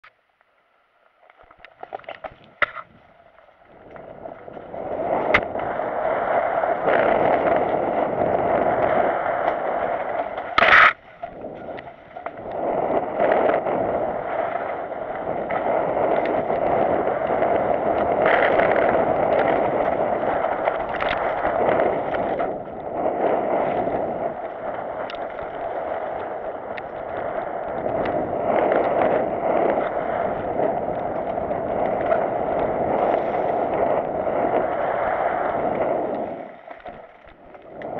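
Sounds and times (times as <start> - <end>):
bike clicks: 1.1 - 37.9
bike tyres rolling on dirt: 1.1 - 37.9
bike rattling: 1.4 - 37.9
sharp clatter: 6.8 - 12.5.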